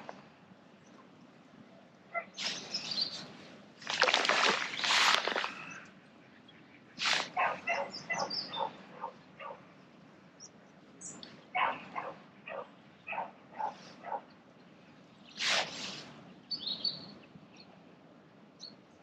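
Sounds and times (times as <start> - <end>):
dog barking: 7.3 - 9.6, 11.6 - 14.2.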